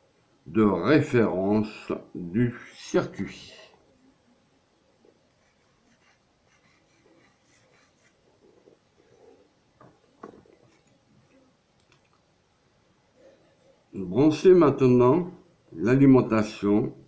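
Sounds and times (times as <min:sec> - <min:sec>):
pencil scratching on paper: 0:05.3 - 0:09.3.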